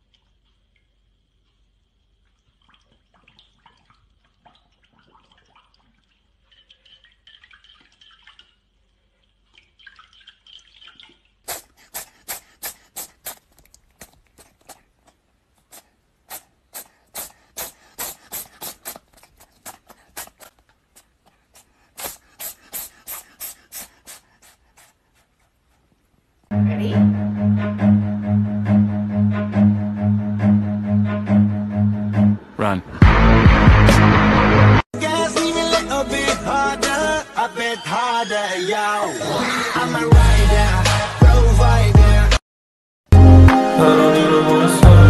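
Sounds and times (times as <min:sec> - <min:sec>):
dog lapping water: 0:00.0 - 0:26.1
cat licking hair: 0:11.5 - 0:26.5.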